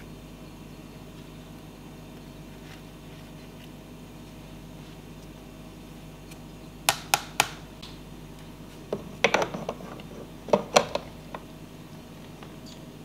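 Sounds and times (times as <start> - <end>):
portafilter clicking and scraping: 8.9 - 11.4.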